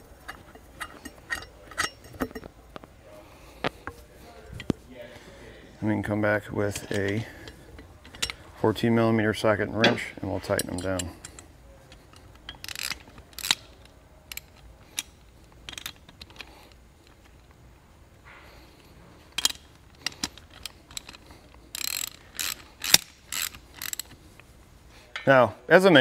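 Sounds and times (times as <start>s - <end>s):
metal clinks and clanks: 0.0s - 2.6s, 6.6s - 8.5s, 9.8s - 17.4s, 19.3s - 24.2s
ratchet clicks: 10.5s - 17.5s, 19.3s - 24.2s.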